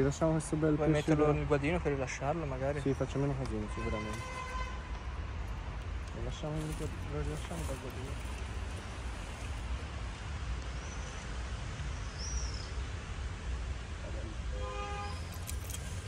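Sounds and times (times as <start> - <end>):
low rumble and hiss: 4.7 - 16.0
bird chirps: 11.9 - 12.8.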